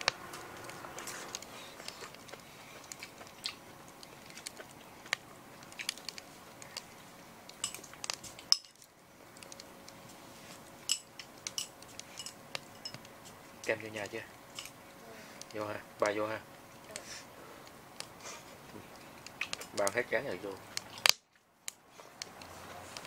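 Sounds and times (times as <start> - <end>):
utensils clinking on cookware: 7.6 - 7.9, 10.9 - 13.1.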